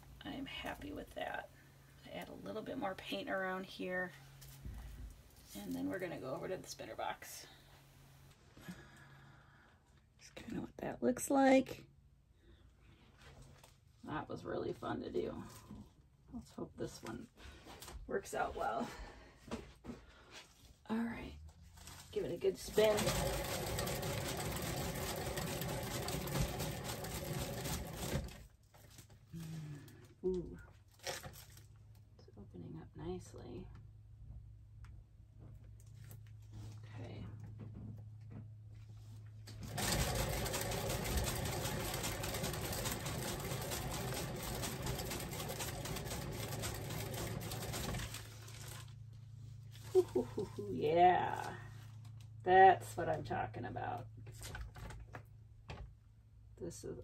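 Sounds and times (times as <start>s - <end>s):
spinner whirring rattle: 21.9s - 28.5s, 39.5s - 48.9s.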